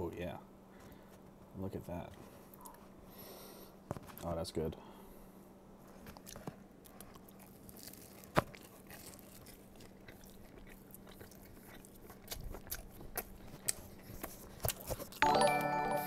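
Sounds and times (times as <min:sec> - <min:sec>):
person chewing bread: 0:05.8 - 0:15.2.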